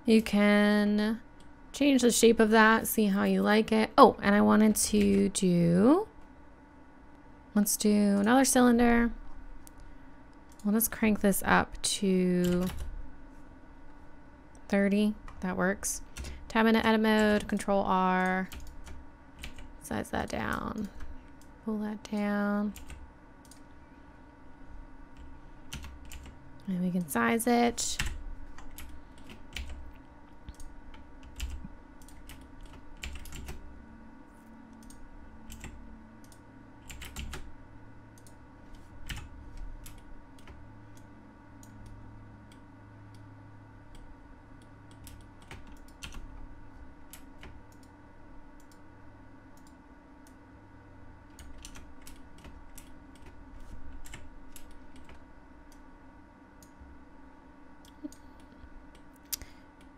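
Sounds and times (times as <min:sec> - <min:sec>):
faint steady hum: 0:00.0 - 0:59.9.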